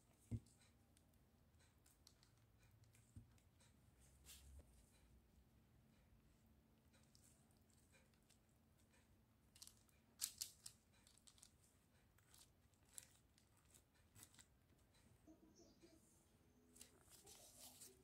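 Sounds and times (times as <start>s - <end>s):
plastic glove and paper crinkling: 12.2s - 14.5s, 16.8s - 18.0s.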